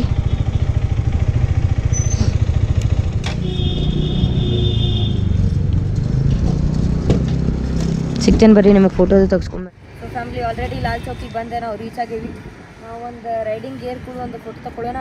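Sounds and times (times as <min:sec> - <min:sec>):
motorcycle engine puttering: 0:00.0 - 0:09.2.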